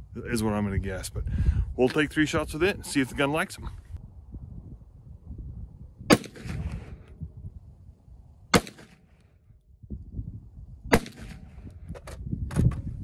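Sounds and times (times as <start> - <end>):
pistol shots: 6.1 - 6.6, 8.5 - 9.0, 10.9 - 11.4.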